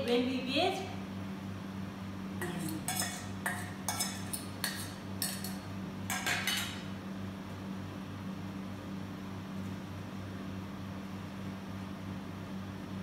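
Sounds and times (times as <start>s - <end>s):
fork clinking against metal bowl: 2.4s - 6.9s.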